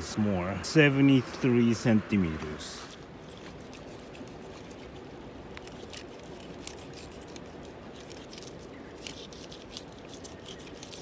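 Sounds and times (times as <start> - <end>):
steady hiss: 0.0 - 11.0
knife cutting and scraping fish: 2.8 - 11.0.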